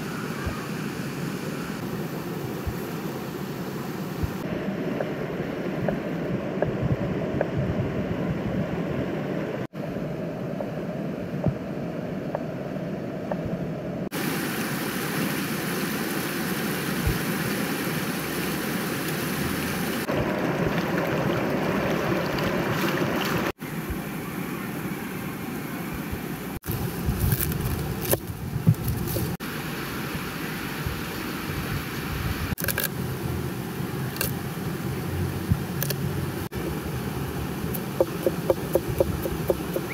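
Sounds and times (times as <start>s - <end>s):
river flowing: 14.2s - 25.7s.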